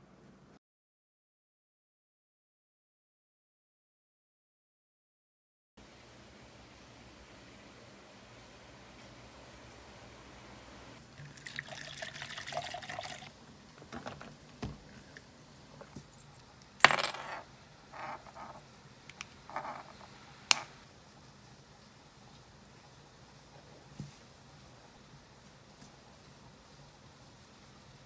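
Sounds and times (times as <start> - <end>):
drink pouring into cup: 11.0 - 13.3.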